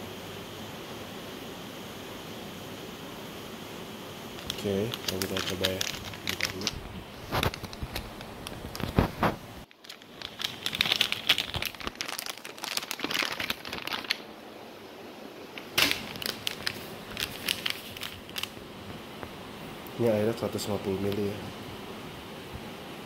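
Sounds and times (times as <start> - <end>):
plastic sachet crinkling: 4.4 - 14.3, 15.6 - 18.6.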